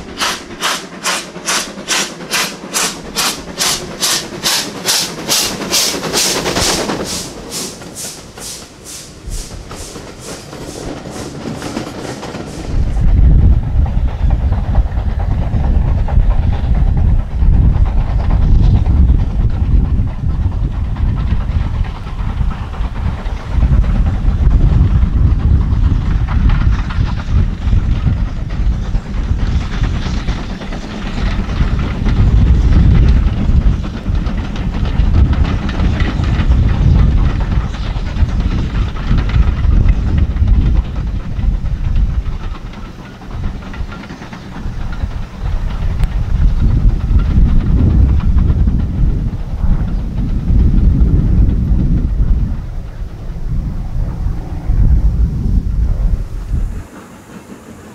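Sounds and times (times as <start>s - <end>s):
steam train rumbling past: 0.0s - 57.9s.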